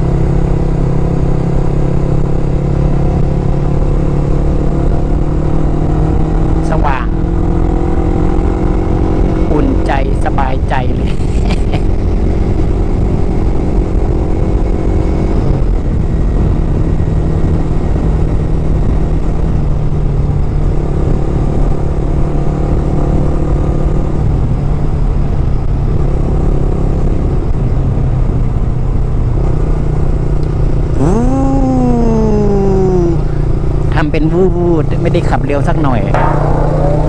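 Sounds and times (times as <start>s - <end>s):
low wind rumble: 0.0s - 26.0s.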